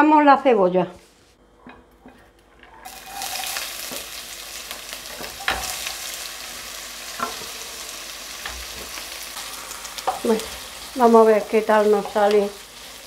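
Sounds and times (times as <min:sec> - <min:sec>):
onion sizzling in hot oil: 0:02.8 - 0:13.0.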